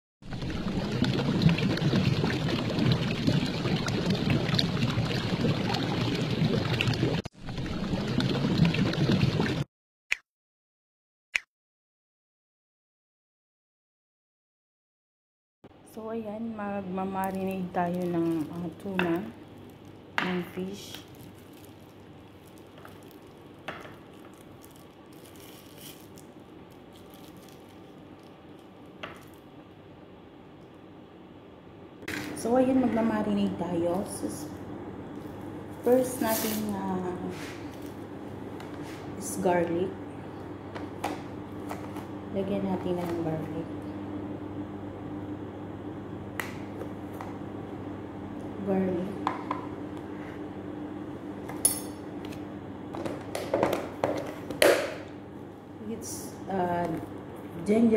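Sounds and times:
steady liquid-like noise: 0.2 - 9.7, 20.9 - 29.6
wet squishing of fish fillets: 20.9 - 28.2.

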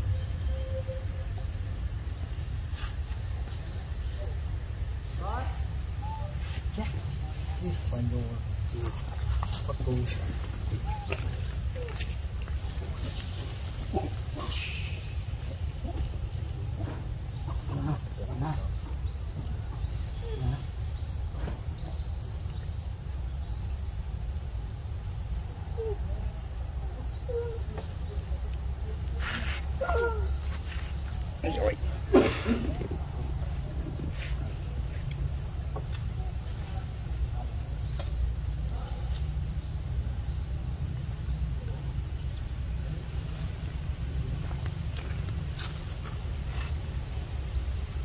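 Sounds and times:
insects trilling: 0.0 - 48.0.

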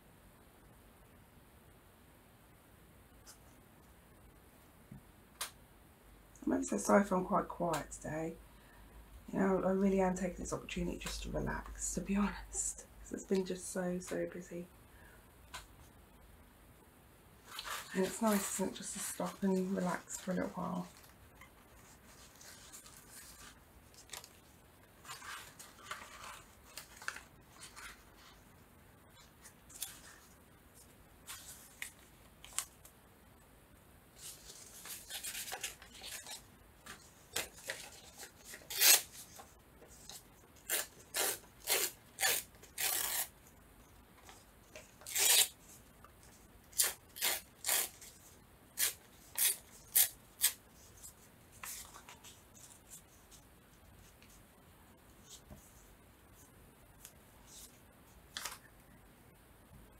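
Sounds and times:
paper rustling: 17.4 - 28.5, 29.1 - 32.9, 34.2 - 43.3, 47.6 - 54.4, 55.2 - 58.7.

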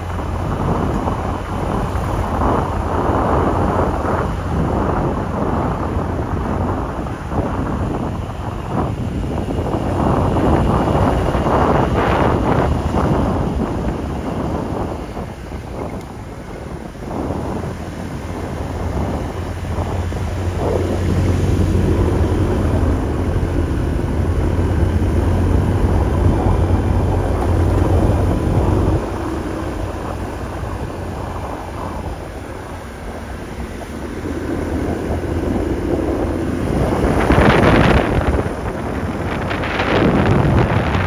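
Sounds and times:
motor scooter riding: 0.0 - 41.0
wind buffeting microphone: 0.0 - 41.0.

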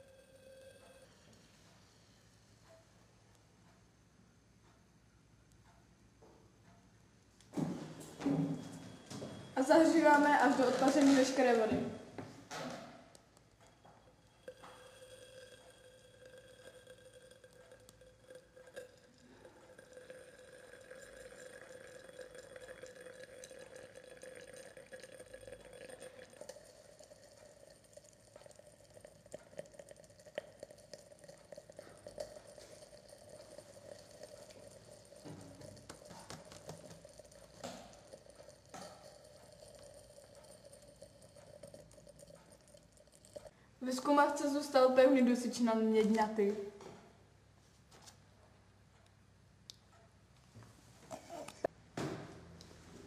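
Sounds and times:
faint steady hum: 0.0 - 51.8
solution sizzling and crackling: 14.2 - 43.5.

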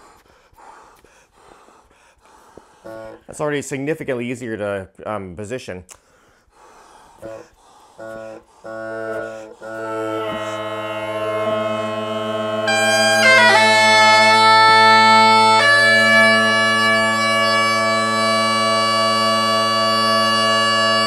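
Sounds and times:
bagpipe drones humming: 2.9 - 3.2, 7.2 - 21.0
bagpipe chanter note: 2.9 - 3.3, 7.2 - 21.0.

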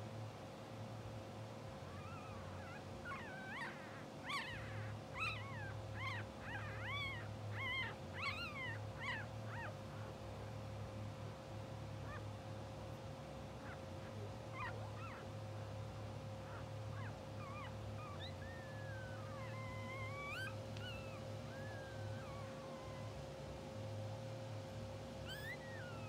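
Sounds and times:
steady low hum: 0.0 - 26.0
puppies squeaking and whining: 1.8 - 10.2, 12.0 - 12.2, 13.6 - 15.3, 16.3 - 23.3, 25.2 - 26.0.

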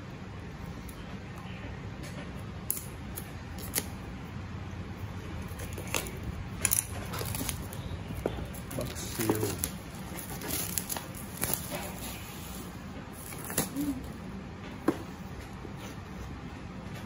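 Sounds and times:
cardboard box clicks and rustles: 5.5 - 12.2.

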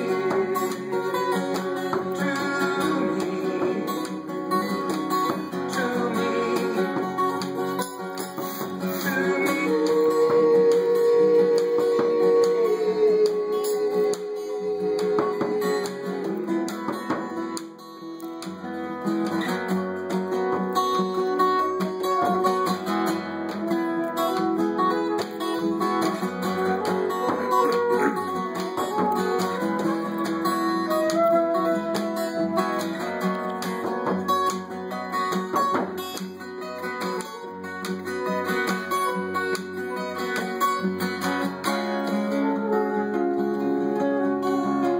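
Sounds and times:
acoustic guitar strumming: 0.0 - 44.9
hand drum beaten with stick: 15.0 - 17.4
wind instrument melody: 21.6 - 35.4, 36.9 - 41.2, 42.0 - 44.9.

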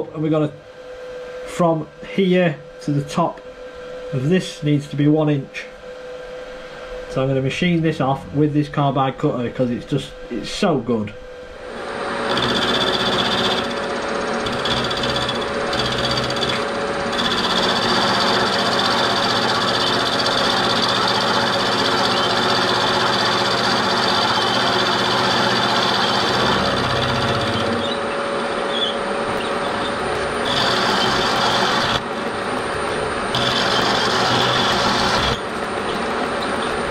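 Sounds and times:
milling machine cutting metal: 11.8 - 36.9.

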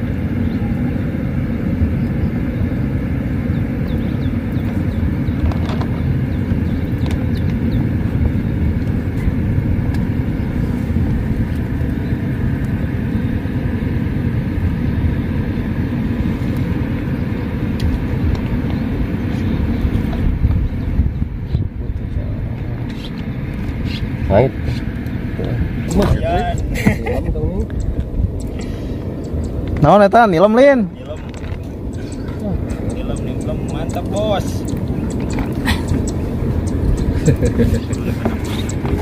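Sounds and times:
low rumble: 0.0 - 39.0
faint ticks: 27.7 - 29.9.

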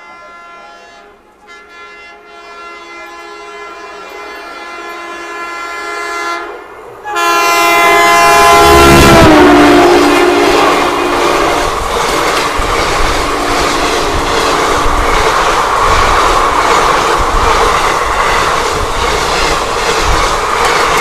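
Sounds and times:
train horn: 0.0 - 15.1
train rushing past: 0.0 - 21.0.

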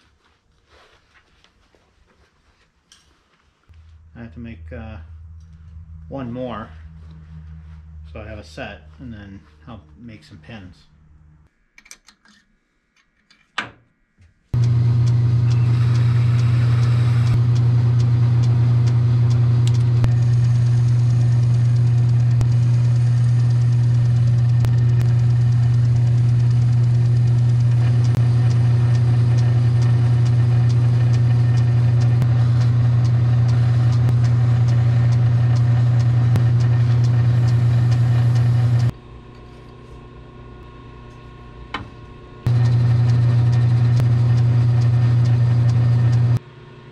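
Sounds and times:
metal lathe running: 14.6 - 38.9, 42.5 - 46.4.

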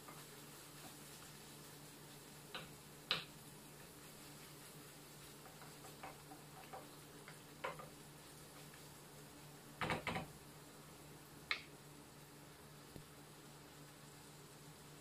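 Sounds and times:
wooden spatula scraping frying pan: 0.0 - 2.8, 3.7 - 8.9
faint steady hum: 0.0 - 15.0.

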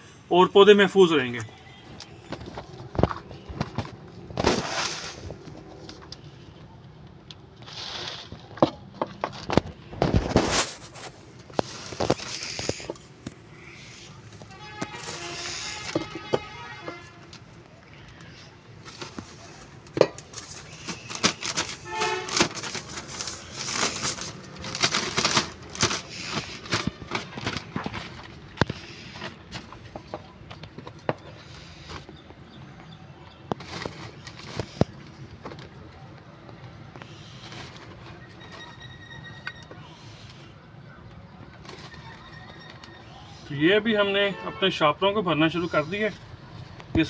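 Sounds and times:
compost pouring: 4.3 - 5.4
plastic bag crinkling: 7.5 - 13.4, 18.8 - 29.8.

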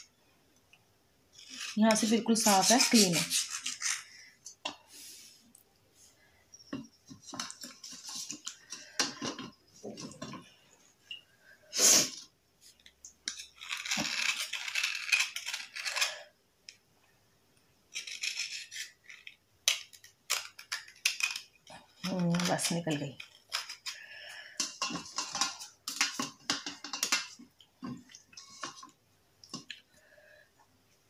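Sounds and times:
knife blade scraping: 1.4 - 4.1.

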